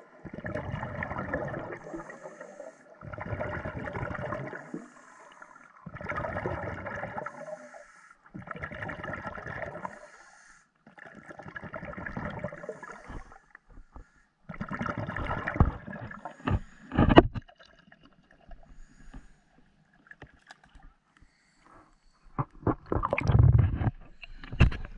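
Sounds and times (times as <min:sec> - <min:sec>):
exhaled bubbles rushing: 0:00.0 - 0:02.3, 0:03.0 - 0:04.8, 0:05.8 - 0:07.5, 0:08.4 - 0:10.0, 0:11.0 - 0:13.2, 0:14.5 - 0:17.1, 0:22.6 - 0:24.1.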